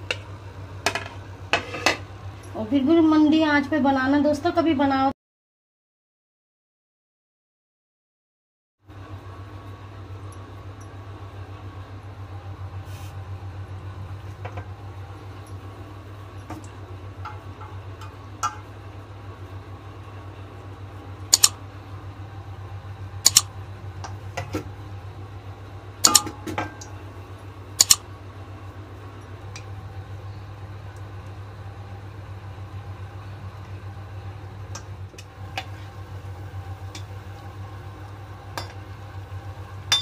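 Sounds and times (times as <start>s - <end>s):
low hum: 9.0s - 40.0s.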